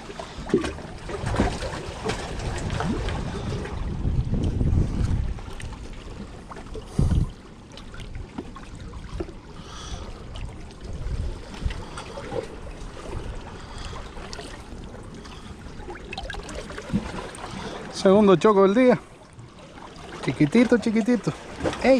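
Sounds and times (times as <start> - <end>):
water sloshing in a bucket: 0.0 - 3.8, 4.4 - 21.9
small splashes and knocks: 0.4 - 3.5, 19.7 - 21.9.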